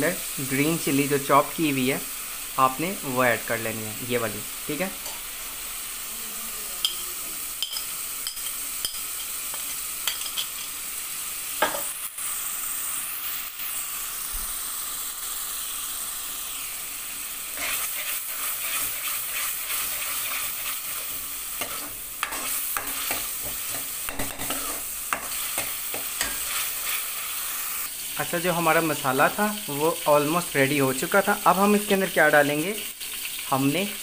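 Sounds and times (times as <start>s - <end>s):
food sizzling in hot oil: 0.0s - 34.0s
metal spoon scraping pan: 7.6s - 10.8s, 17.6s - 27.2s.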